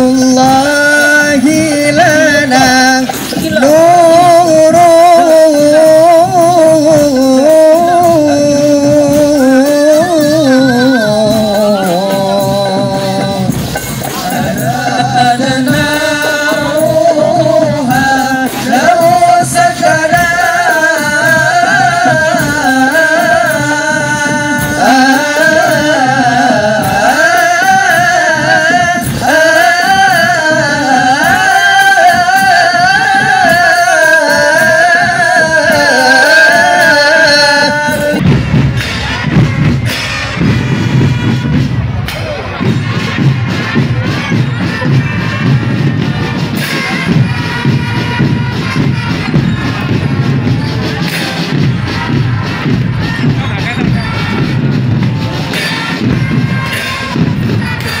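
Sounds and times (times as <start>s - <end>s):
person singing melody: 0.0s - 38.4s
frame drums beating: 0.0s - 58.0s.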